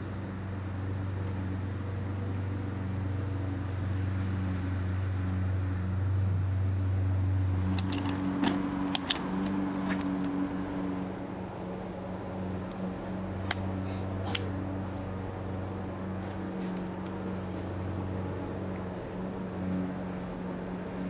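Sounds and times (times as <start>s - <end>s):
low mechanical hum: 0.0s - 21.0s
satchel clasps clicking open: 7.7s - 10.3s.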